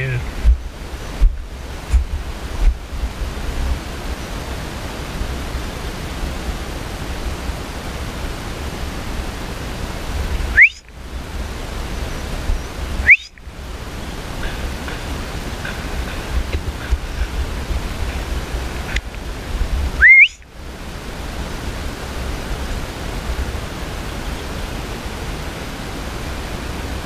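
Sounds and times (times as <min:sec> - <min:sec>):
wind on microphone: 0:00.0 - 0:27.0
short loud rising whistle: 0:10.6 - 0:10.9, 0:13.0 - 0:13.4, 0:20.0 - 0:20.4.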